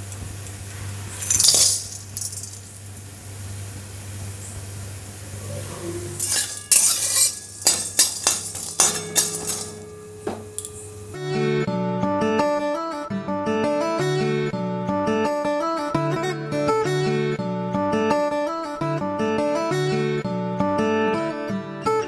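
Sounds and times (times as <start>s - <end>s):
steady low hum: 0.0s - 11.4s
spices clinking in metal pan: 1.2s - 2.8s, 6.2s - 11.1s.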